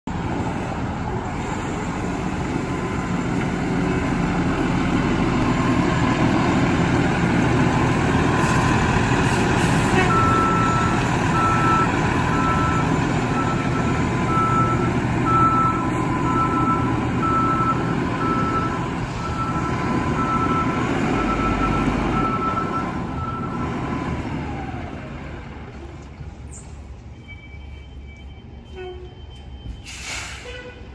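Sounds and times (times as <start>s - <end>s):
diesel truck engine running: 0.1s - 27.0s
reversing alarm beeps: 10.1s - 23.7s, 27.2s - 30.2s.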